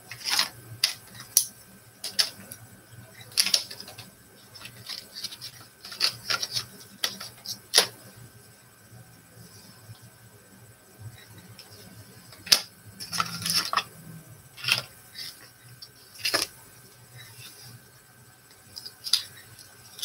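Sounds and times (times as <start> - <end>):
clattering scrape: 13.0 - 13.9.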